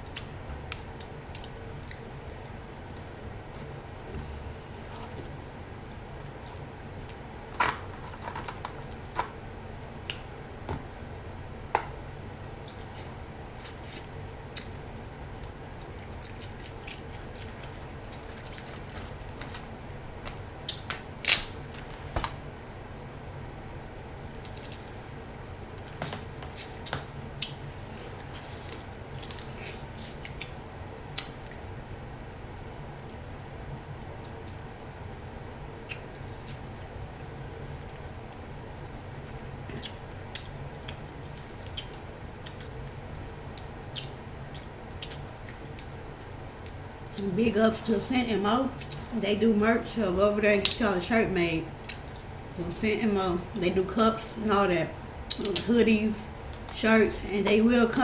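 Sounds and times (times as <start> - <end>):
wet squishing and chewing: 0.0 - 7.3, 12.6 - 21.7, 23.6 - 31.9, 32.5 - 47.2, 51.8 - 52.4
low steady hum: 0.0 - 58.0
crab shells cracking: 15.8 - 22.4, 23.7 - 27.6.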